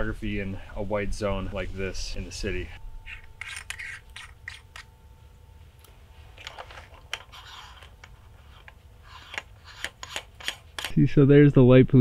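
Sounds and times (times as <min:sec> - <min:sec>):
gloved hands handling equipment: 0:05.8 - 0:11.0.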